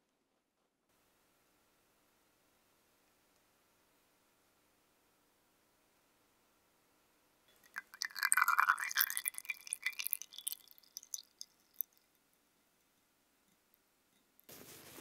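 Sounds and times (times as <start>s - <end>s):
wet crackling of oil: 7.5s - 12.2s.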